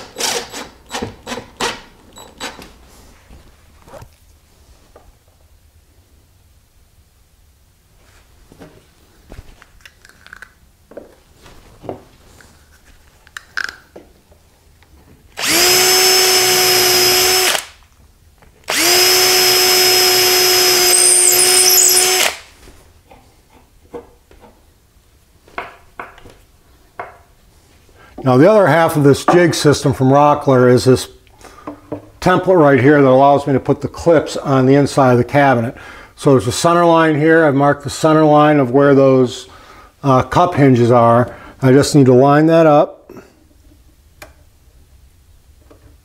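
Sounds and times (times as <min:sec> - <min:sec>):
cordless drill boring into wood: 0:00.0 - 0:01.8, 0:15.4 - 0:17.8, 0:18.7 - 0:22.5.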